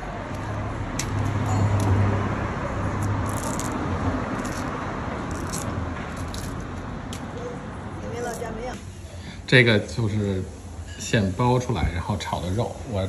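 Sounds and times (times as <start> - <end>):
street background noise: 0.0 - 13.0
bamboo sheaths tearing: 3.0 - 6.6.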